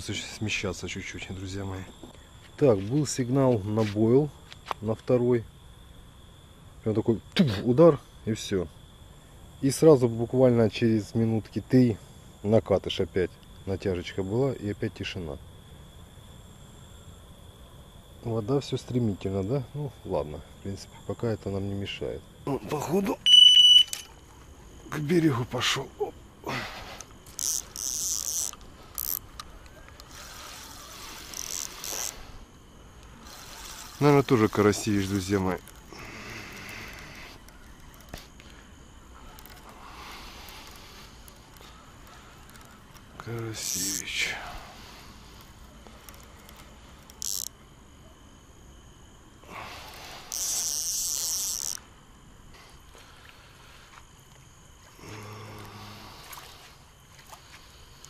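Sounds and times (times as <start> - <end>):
crickets chirping: 0.0 - 58.0
short low hum: 22.2 - 58.0
fishing reel ratchet clicking: 27.0 - 32.2, 33.0 - 35.9, 36.5 - 38.4, 39.3 - 39.8, 40.4 - 44.0, 45.4 - 47.6, 49.9 - 51.8.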